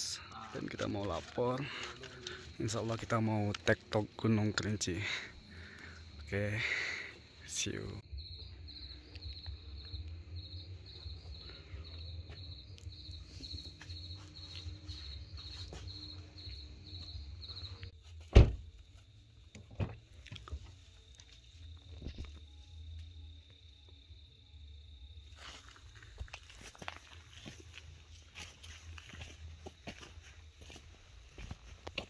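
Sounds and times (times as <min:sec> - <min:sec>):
high insect trill: 0:00.0 - 0:32.0
insects chirping: 0:00.0 - 0:32.0
loud thump: 0:18.3 - 0:18.6.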